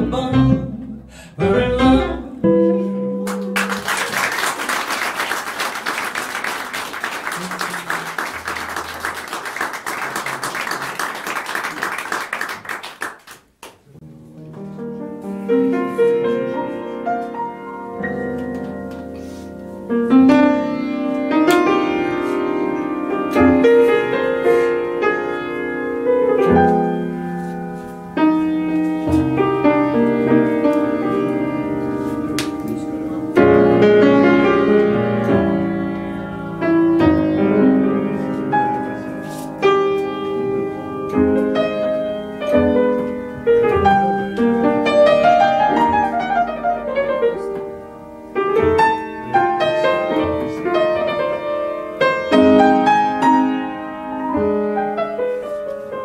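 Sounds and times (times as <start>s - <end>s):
grand piano playing: 0.0s - 10.7s, 14.0s - 56.0s
audience applauding: 3.3s - 13.9s.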